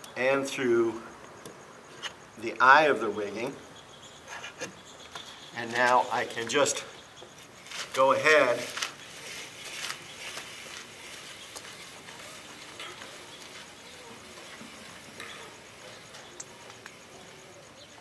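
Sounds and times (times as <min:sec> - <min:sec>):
steady background hiss: 0:00.0 - 0:18.0
footsteps scuffing on dirt: 0:07.2 - 0:16.3.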